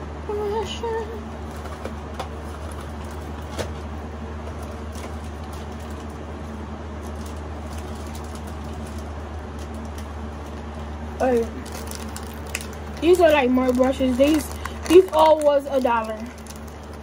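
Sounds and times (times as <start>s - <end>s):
low hum and hiss: 0.0s - 17.0s.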